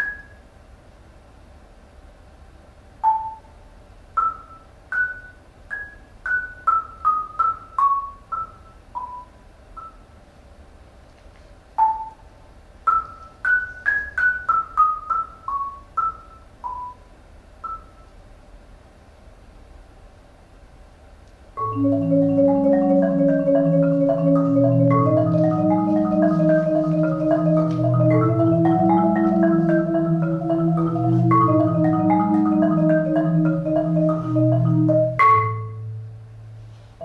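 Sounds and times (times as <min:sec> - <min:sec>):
marimba melody: 0:21.6 - 0:36.7.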